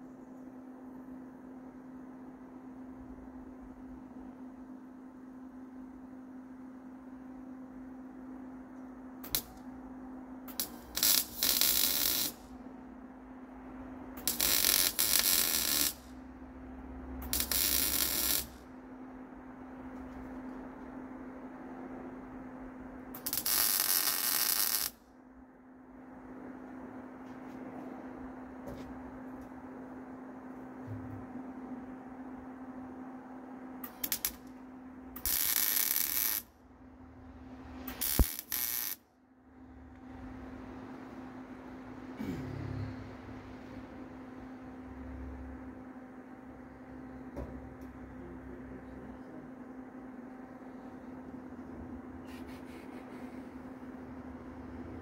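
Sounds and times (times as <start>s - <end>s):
welder machine humming: 9.2s - 19.1s, 23.0s - 25.0s, 33.8s - 39.0s, 39.6s - 55.0s
welding arc crackling: 9.3s - 9.6s, 10.5s - 12.5s, 14.2s - 16.2s, 17.2s - 18.7s, 23.2s - 25.0s, 33.8s - 34.6s, 35.2s - 36.5s, 37.8s - 39.0s
low hum: 25.2s - 38.6s, 39.2s - 55.0s.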